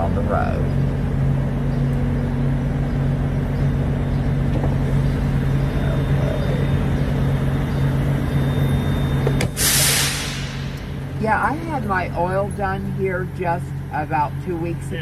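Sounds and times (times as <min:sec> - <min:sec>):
diesel truck engine idling: 0:00.0 - 0:15.0
air brake hiss: 0:09.6 - 0:10.9.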